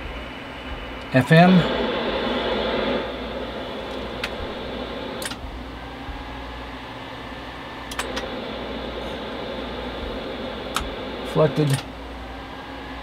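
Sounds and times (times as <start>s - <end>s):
cooling fans whirring: 0.0s - 13.0s
faint clicks: 10.2s - 11.1s.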